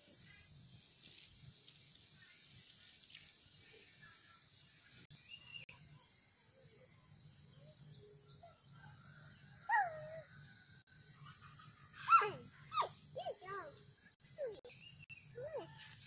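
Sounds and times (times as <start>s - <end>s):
steady high hiss: 0.0s - 5.6s
faint bird chirps: 0.1s - 16.0s.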